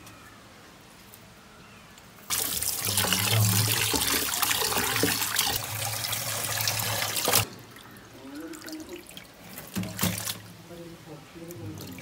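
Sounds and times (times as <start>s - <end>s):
tap water splashing into bowl: 2.3s - 5.8s, 9.6s - 10.5s
hands washing meat: 2.3s - 7.5s.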